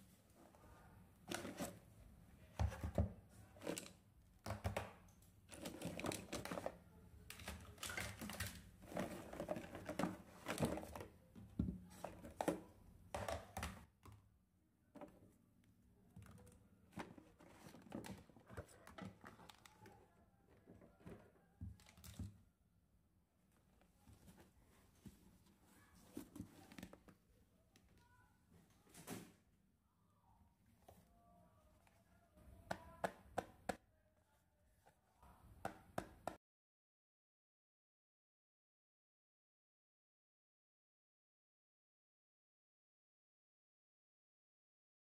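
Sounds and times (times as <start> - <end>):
plastic toys clicking and knocking: 2.6 - 13.9.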